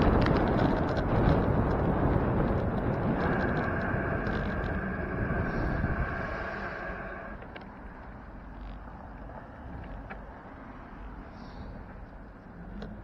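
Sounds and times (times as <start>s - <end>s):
steady high whine: 0.0s - 8.6s
wind noise: 0.0s - 8.8s
bicycle road noise: 0.0s - 13.0s.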